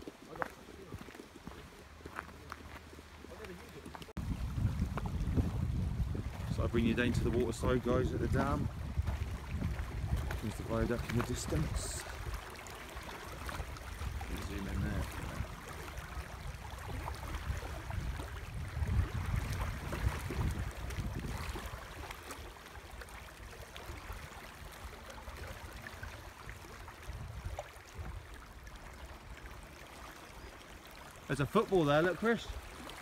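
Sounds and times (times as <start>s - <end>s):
small waves lapping on stones: 0.0s - 33.0s
wind rumble on microphone: 4.1s - 29.4s.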